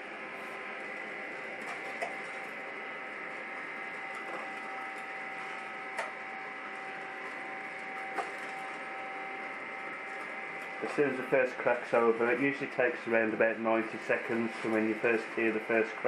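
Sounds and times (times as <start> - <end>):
coffee roaster whine: 0.0 - 16.0.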